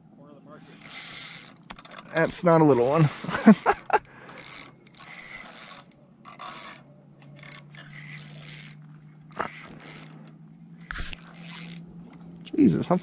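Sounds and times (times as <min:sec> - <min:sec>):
fishing reel rattling: 0:00.7 - 0:13.0.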